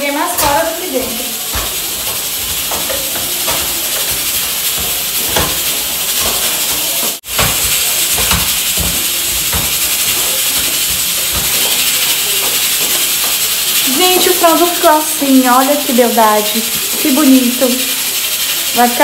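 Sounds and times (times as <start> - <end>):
steady high hiss: 0.0 - 19.0
chicken tossed in metal pot: 0.4 - 14.9.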